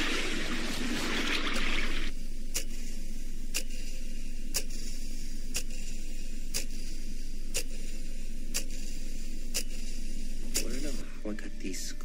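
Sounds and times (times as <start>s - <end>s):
clock ticking: 2.5s - 2.8s, 3.5s - 3.8s, 5.5s - 5.9s, 7.5s - 7.8s, 8.5s - 8.8s.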